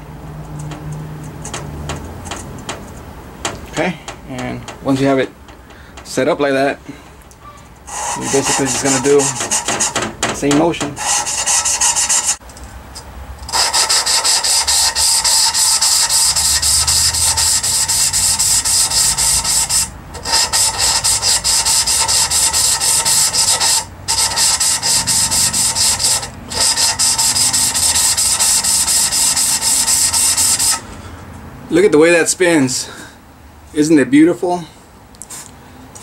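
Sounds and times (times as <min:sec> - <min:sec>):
valve lapping gritty rasping: 0:07.8 - 0:12.4, 0:13.4 - 0:30.8.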